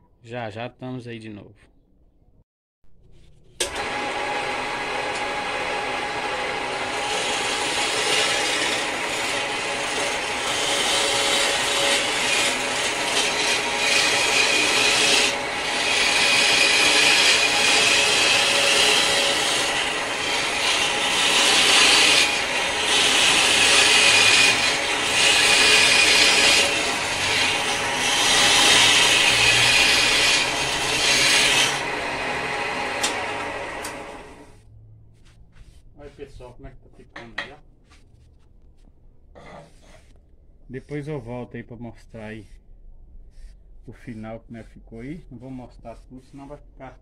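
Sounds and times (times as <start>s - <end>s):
wood lathe running: 3.6s - 34.5s
chisel scraping wood on lathe: 4.8s - 34.5s.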